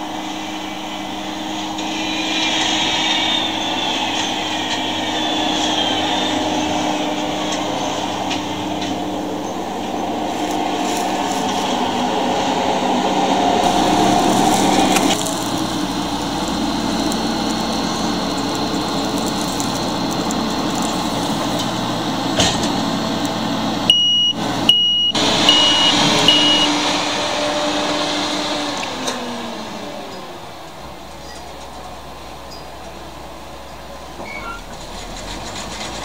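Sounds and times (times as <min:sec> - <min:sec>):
combine harvester running: 0:00.0 - 0:36.0
short high beeps: 0:23.9 - 0:26.7.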